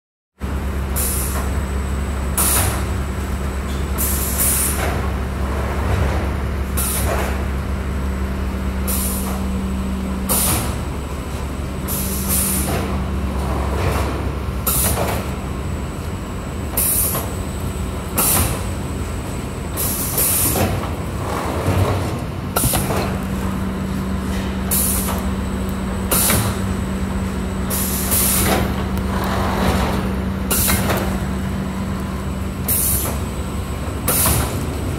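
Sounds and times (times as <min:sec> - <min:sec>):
low machine hum: 0:00.4 - 0:34.9
hissing bursts of air: 0:04.0 - 0:04.9, 0:08.8 - 0:09.4, 0:10.3 - 0:10.8, 0:11.9 - 0:12.9, 0:16.8 - 0:17.4, 0:19.8 - 0:20.8, 0:24.6 - 0:25.3, 0:26.1 - 0:26.6, 0:27.7 - 0:29.6, 0:30.5 - 0:31.1, 0:32.7 - 0:33.2.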